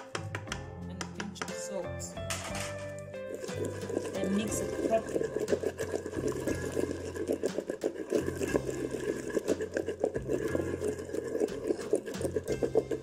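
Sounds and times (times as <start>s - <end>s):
wooden pestle mashing wet paste: 2.8s - 13.0s.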